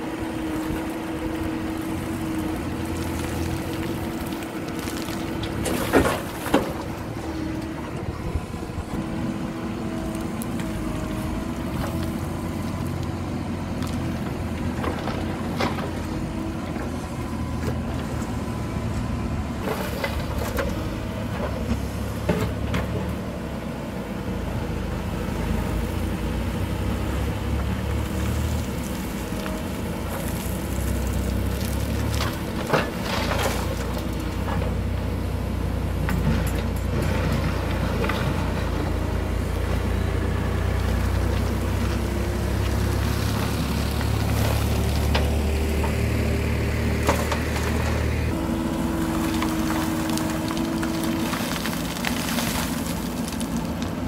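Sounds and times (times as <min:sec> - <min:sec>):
diesel engine running: 0:00.0 - 0:54.0
bucket knocking and scraping gravel: 0:03.0 - 0:06.9, 0:30.2 - 0:34.5, 0:49.0 - 0:54.0.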